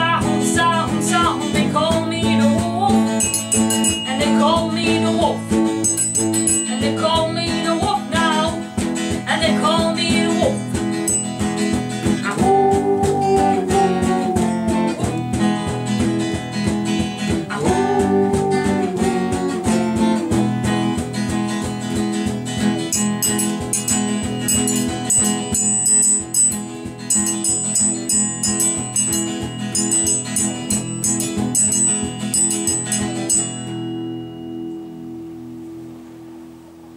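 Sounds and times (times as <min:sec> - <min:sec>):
sliding lead guitar line: 0:00.0 - 0:36.9
strummed guitars: 0:00.0 - 0:36.9
thin high ringing notes: 0:03.1 - 0:05.1, 0:05.7 - 0:07.4, 0:11.0 - 0:11.8, 0:22.9 - 0:35.8.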